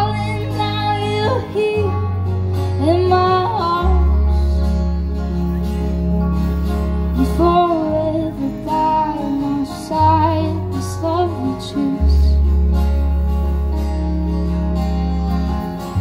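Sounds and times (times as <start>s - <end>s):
woman singing lead vocal: 0.0s - 4.9s, 7.2s - 12.6s
live folk band: 0.0s - 16.0s.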